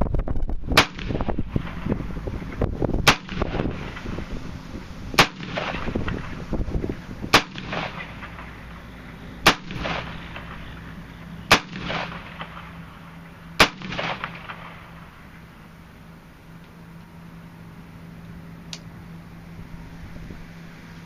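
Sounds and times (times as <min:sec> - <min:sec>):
rifle shots with echo: 0:00.8 - 0:02.0, 0:03.0 - 0:04.2, 0:05.2 - 0:06.4, 0:07.3 - 0:15.3.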